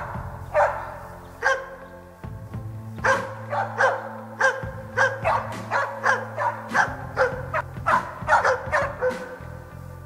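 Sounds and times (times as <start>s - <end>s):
dog barking rapidly: 0.0s - 1.8s, 3.0s - 9.5s.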